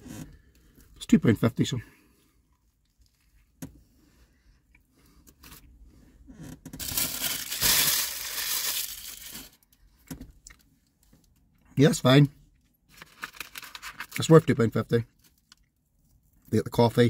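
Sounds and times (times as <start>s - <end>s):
rustling and crinkling while eating: 6.8s - 11.5s, 12.5s - 16.6s.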